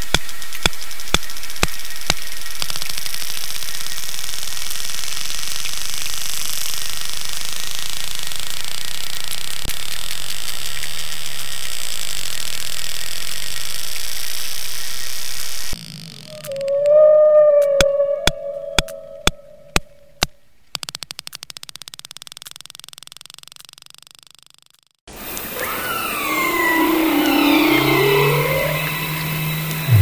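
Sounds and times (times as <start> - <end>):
sperm whale clicks underwater: 16.1 - 24.3.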